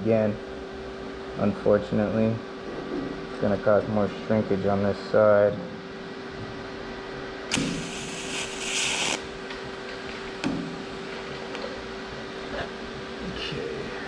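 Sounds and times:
welding torch hiss: 0:07.5 - 0:09.4
welder humming: 0:07.5 - 0:11.2.

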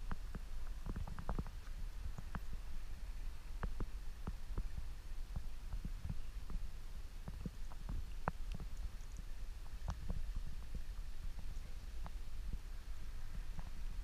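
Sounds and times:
faint clicks and ticks: 0:00.0 - 0:14.0.

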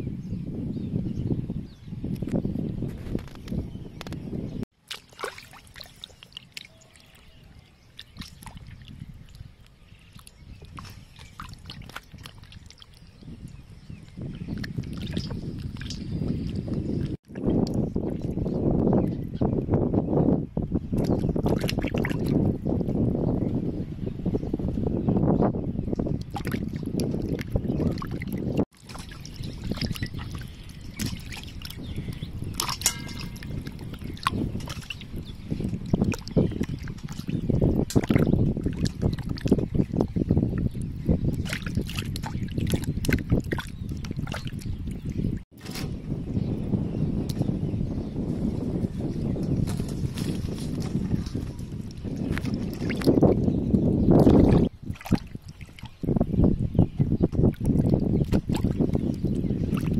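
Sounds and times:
small water splashes: 0:03.2 - 0:18.6, 0:21.0 - 0:22.5, 0:26.0 - 0:45.6, 0:49.7 - 0:56.1, 0:57.0 - 0:59.9
wet squelching: 0:04.8 - 0:13.1, 0:26.2 - 0:35.1, 0:41.3 - 0:45.1, 0:54.2 - 0:56.0
water dripping: 0:04.9 - 0:07.2, 0:25.9 - 0:39.6.

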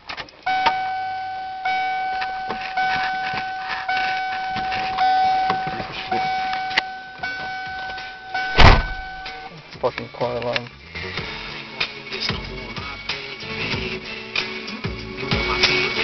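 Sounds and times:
car alarm beeping: 0:00.4 - 0:09.5.

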